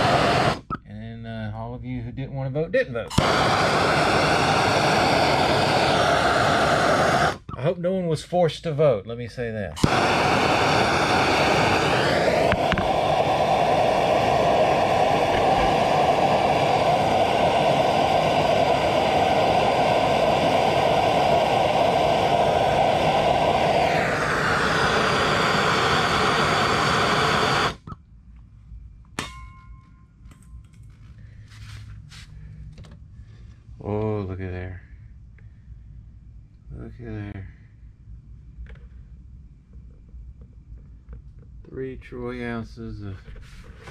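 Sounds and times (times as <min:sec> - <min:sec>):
gas torch hissing: 0:00.0 - 0:00.7, 0:03.0 - 0:07.5, 0:09.8 - 0:27.9.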